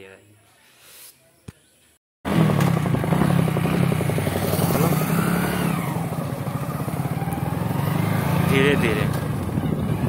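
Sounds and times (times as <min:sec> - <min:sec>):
motorcycle engine cruising: 0:02.3 - 0:10.0
wind rushing over microphone: 0:02.8 - 0:10.0.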